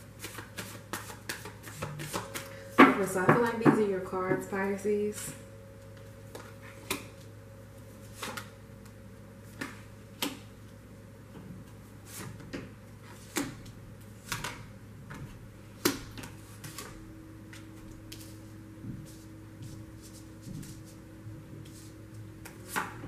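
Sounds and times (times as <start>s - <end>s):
low steady hum: 0.0s - 23.0s
cards tapping and slapping on table: 0.2s - 3.8s.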